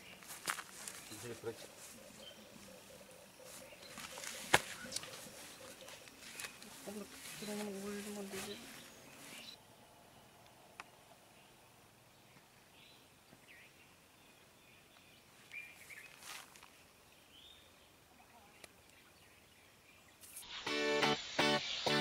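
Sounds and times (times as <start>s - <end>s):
background hiss: 0.0s - 22.0s
music: 20.6s - 22.0s.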